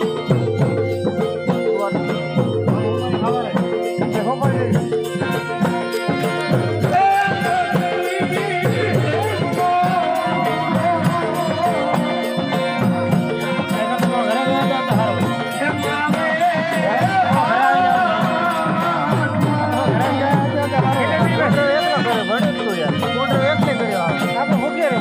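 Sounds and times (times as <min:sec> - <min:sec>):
drum rhythm: 0:00.0 - 0:25.0
harmonium melody: 0:00.0 - 0:25.0
small jingling cymbals: 0:00.0 - 0:25.0.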